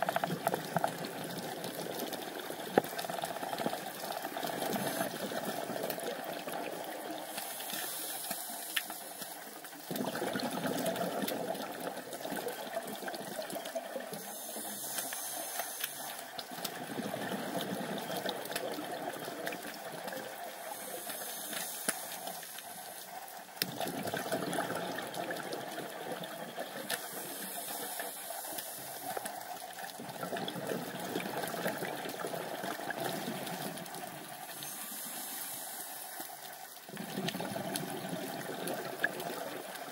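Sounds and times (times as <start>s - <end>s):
underwater rush and hiss: 0.0s - 39.9s
sharp underwater clicks: 13.1s - 20.2s.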